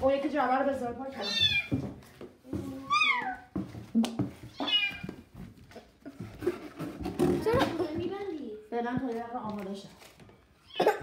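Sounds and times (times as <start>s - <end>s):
cat meowing: 1.2s - 1.8s, 4.5s - 5.2s.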